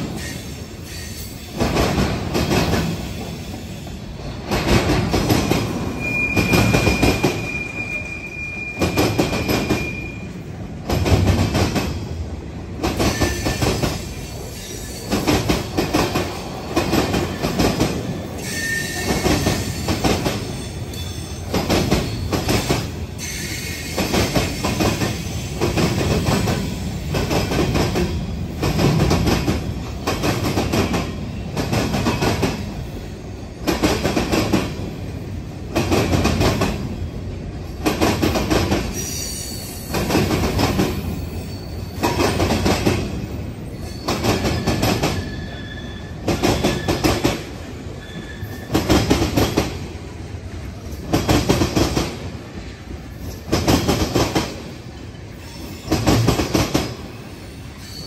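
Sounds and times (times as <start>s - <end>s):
high wheel squeal: 5.9s - 10.4s, 18.4s - 21.4s, 23.2s - 25.3s, 41.0s - 42.3s, 43.6s - 47.0s, 47.9s - 48.9s, 57.4s - 58.0s
train wheels clattering over rail joints: 42.0s - 43.2s.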